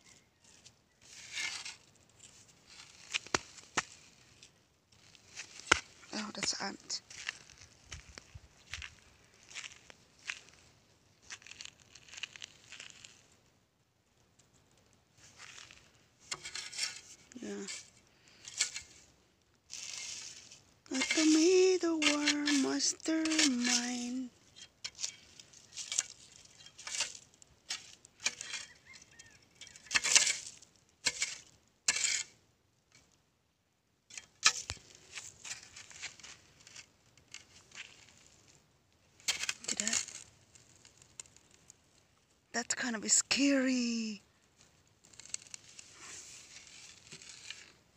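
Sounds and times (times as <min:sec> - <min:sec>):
stick scraping through dry leaves: 0:00.0 - 0:13.3, 0:15.2 - 0:33.1, 0:34.1 - 0:44.0, 0:44.6 - 0:47.9
footsteps on gritty dirt: 0:05.0 - 0:13.2.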